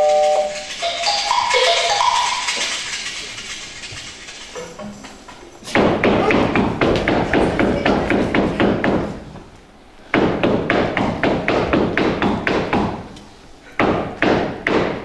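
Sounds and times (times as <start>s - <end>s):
rapid thumping knocks: 5.7s - 9.4s, 10.1s - 13.1s.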